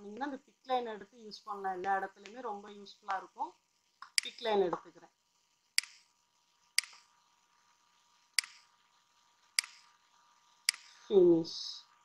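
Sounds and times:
computer mouse clicking: 4.0s - 4.5s, 5.8s - 6.1s, 6.8s - 7.1s, 8.4s - 8.7s, 9.6s - 9.9s, 10.7s - 10.9s.

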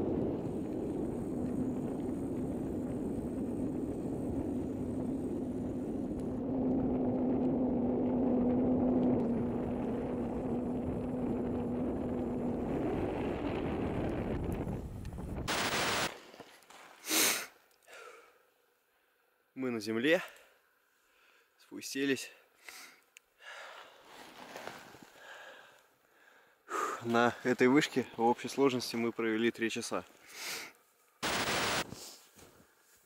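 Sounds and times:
wind buffeting microphone: 0.0s - 15.6s
short rustling or breathing: 22.6s - 27.1s, 31.9s - 33.0s.

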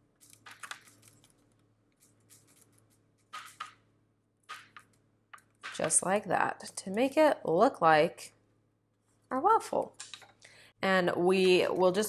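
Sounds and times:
spoon scraping dough on metal sheet: 1.9s - 3.8s.

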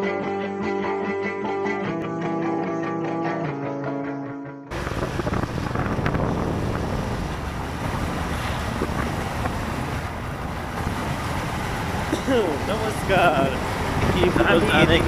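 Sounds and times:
motorcycle engine rumble: 4.7s - 12.8s
wind rushing over microphone: 4.7s - 15.0s.

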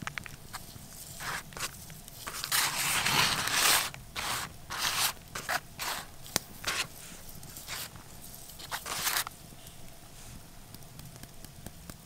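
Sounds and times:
baking paper crinkling: 0.2s - 9.7s.

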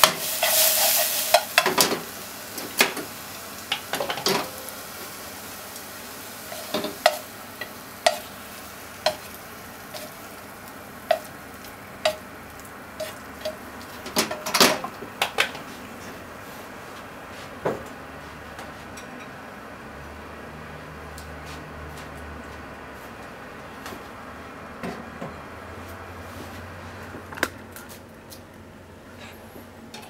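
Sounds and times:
food sizzling in frying pan: 0.0s - 15.3s.

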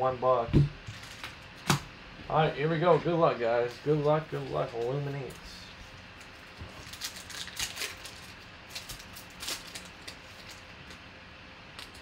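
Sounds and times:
foil wrapper crinkling and tearing: 6.2s - 11.0s.

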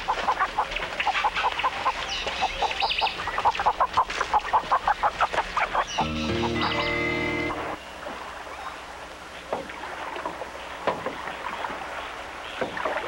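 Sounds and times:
chicken clucking: 0.1s - 7.8s
sustained musical chord: 6.0s - 7.8s.

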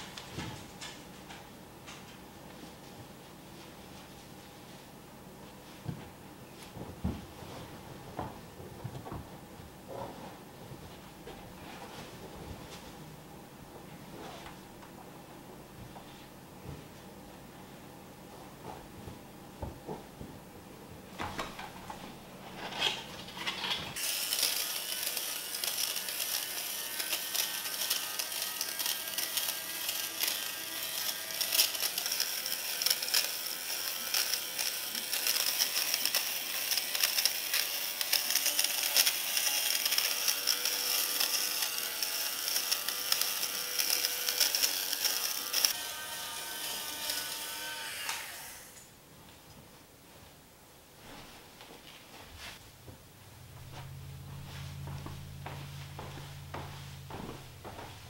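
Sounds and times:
small motor whining: 24.0s - 45.8s.

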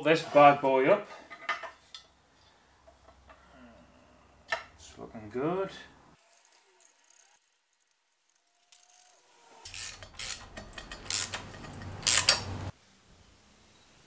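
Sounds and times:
socket ratchet clicking: 9.7s - 12.7s.

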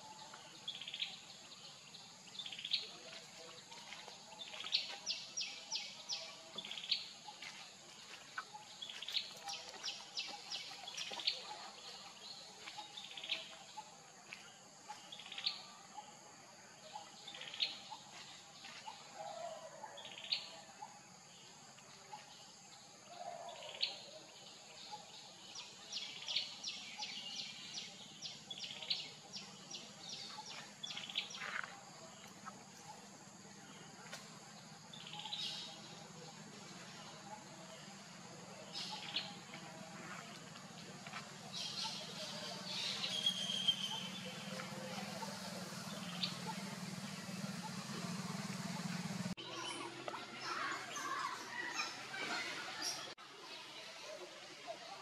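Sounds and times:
small birds chirping: 0.0s - 16.1s, 24.8s - 53.2s.

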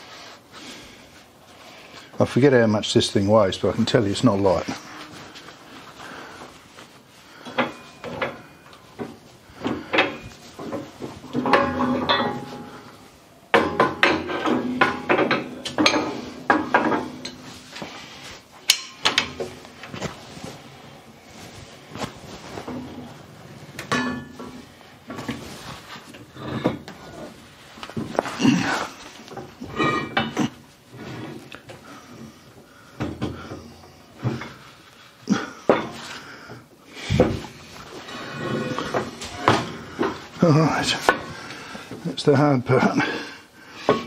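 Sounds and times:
steel plate clanking and scraping: 7.4s - 18.0s, 18.6s - 19.6s, 23.8s - 27.3s, 29.6s - 31.5s, 37.9s - 41.3s.

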